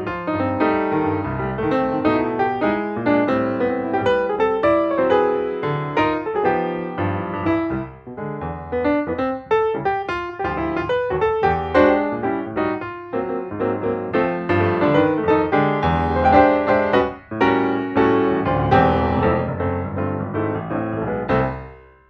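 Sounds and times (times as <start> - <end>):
piano music: 0.0 - 22.0.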